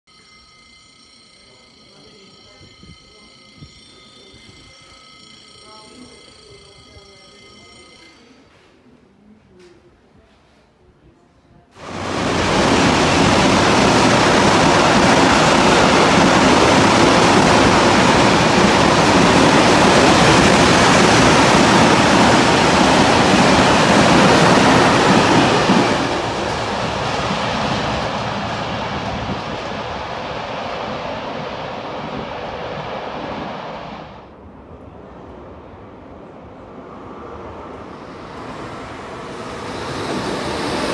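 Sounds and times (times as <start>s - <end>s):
freight train passing: 11.8s - 40.9s.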